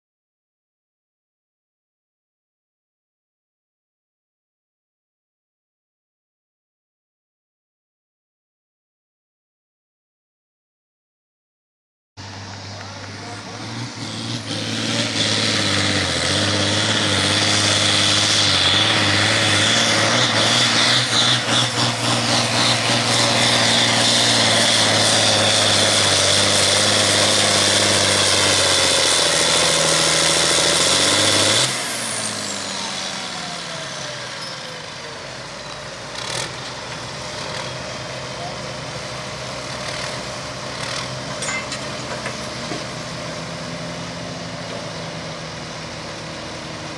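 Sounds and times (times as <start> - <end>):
tractor diesel engine droning: 12.2 - 46.9.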